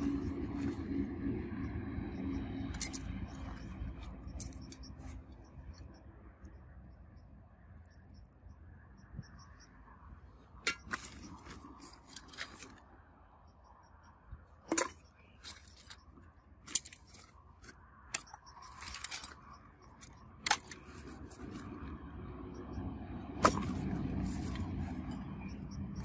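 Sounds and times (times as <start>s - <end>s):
small hard objects clicking: 4.3s - 4.9s.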